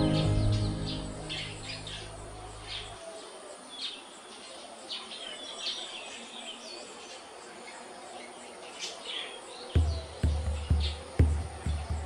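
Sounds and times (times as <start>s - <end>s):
background music: 0.0s - 3.0s.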